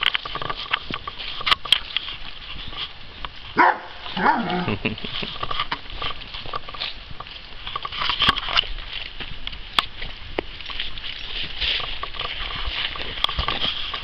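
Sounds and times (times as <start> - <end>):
footsteps on grass and gravel: 0.0 - 14.0
dog yelping: 3.6 - 4.7.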